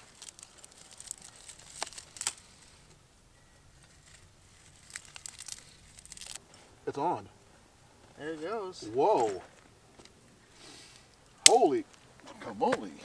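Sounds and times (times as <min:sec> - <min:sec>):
dry leaves crinkling and crackling: 0:00.0 - 0:06.5.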